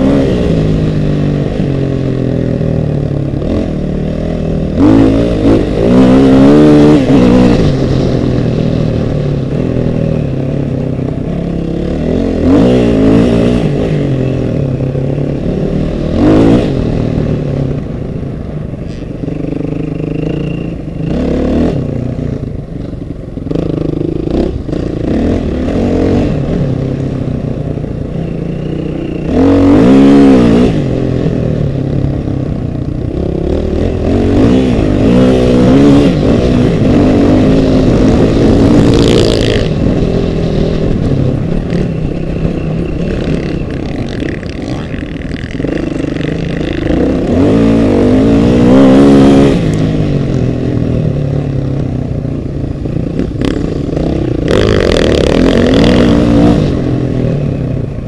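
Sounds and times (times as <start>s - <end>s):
off-road vehicle engine revving: 0.0s - 18.0s, 28.1s - 31.8s, 33.1s - 51.9s, 53.1s - 57.6s.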